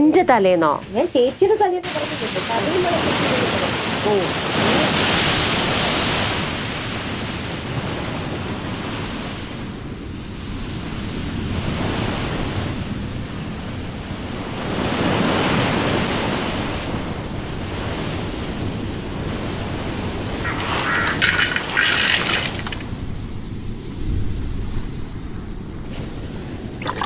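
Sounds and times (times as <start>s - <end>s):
ocean surf breaking on beach: 1.8s - 23.2s.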